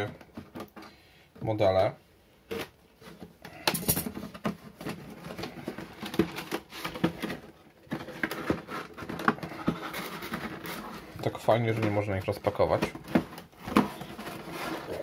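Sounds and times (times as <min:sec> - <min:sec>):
cardboard box crackling and scraping: 0:04.4 - 0:15.0.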